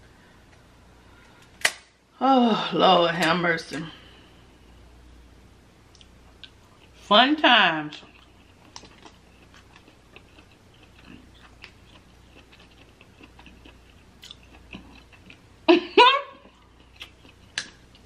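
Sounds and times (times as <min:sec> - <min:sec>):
person chewing: 0:05.9 - 0:07.0, 0:07.9 - 0:15.6, 0:16.4 - 0:18.0.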